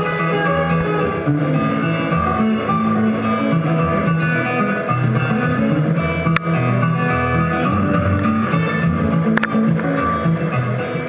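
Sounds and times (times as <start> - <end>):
fingerpicked acoustic guitar: 0.0 - 11.0
sharp click: 9.3 - 9.6.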